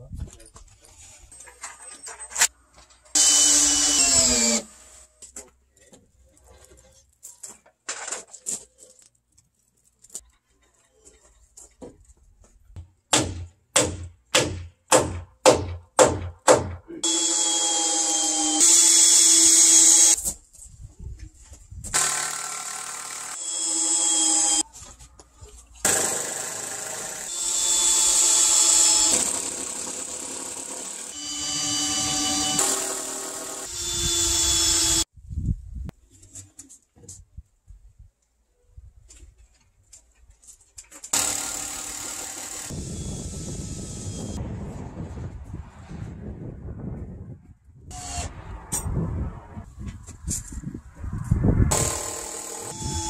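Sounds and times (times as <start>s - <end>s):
power tool running and winding down: 3.2s - 4.7s, 22.0s - 24.6s, 25.9s - 35.0s, 41.2s - 44.4s, 51.7s - 53.0s.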